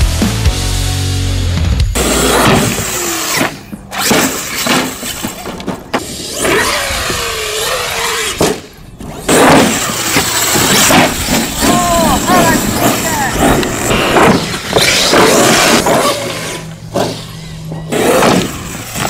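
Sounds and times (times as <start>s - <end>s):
tyres on gravel: 2.0s - 19.0s
electric motor whine: 6.0s - 19.0s.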